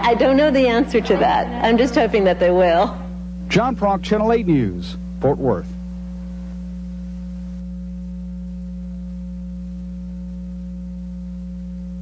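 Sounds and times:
faint steady tones: 0.0 - 12.0
low electrical hum: 0.0 - 12.0.

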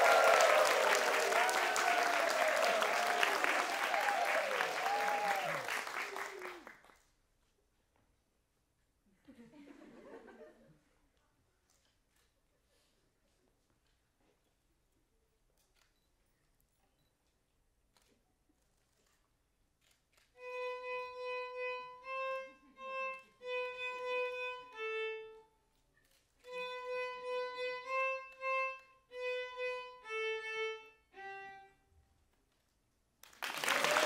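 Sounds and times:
audience applause: 0.0 - 7.0, 33.2 - 34.0
solo violin: 20.3 - 25.6, 26.4 - 32.1.

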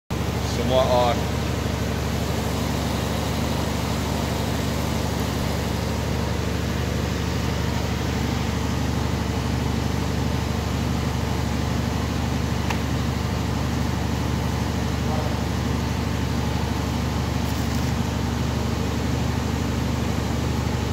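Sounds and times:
water chiller humming: 0.1 - 20.9
fan hiss: 0.2 - 8.5.

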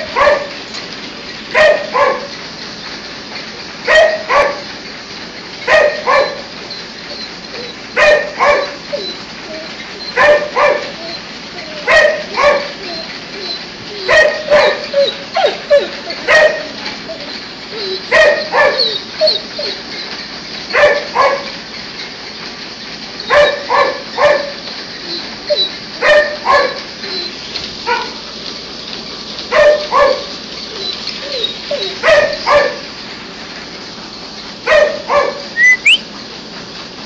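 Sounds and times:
dog barking: 0.0 - 0.6, 1.5 - 2.3, 3.9 - 4.7, 5.7 - 6.5, 8.0 - 9.0, 10.2 - 13.0, 14.0 - 16.8, 18.1 - 19.0, 20.7 - 21.5, 23.3 - 24.6, 26.0 - 26.8, 27.9 - 28.2, 29.5 - 30.3, 31.8 - 32.9, 34.7 - 36.0
steady background noise: 0.0 - 37.0.

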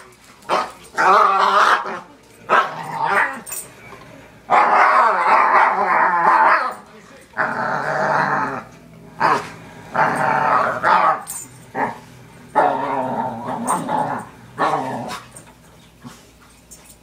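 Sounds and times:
dog growling moans: 0.9 - 3.5, 4.7 - 6.8, 7.4 - 15.4.

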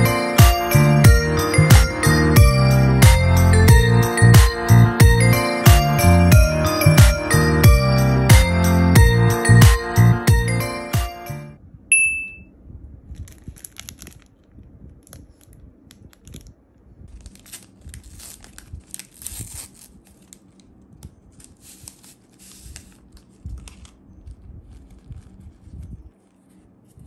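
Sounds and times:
brief ringing ping: 11.9 - 12.4
paper sachet tearing and crinkling: 13.1 - 16.5, 17.1 - 26.6.

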